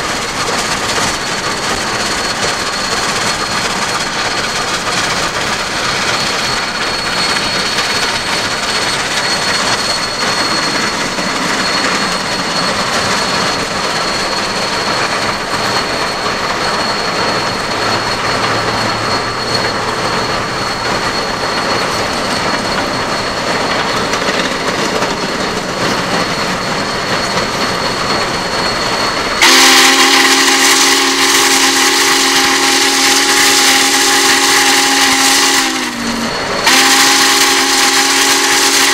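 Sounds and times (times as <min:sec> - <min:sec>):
steam locomotive rumbling: 0:00.0 - 0:38.9
steam whistle blast: 0:29.4 - 0:38.9.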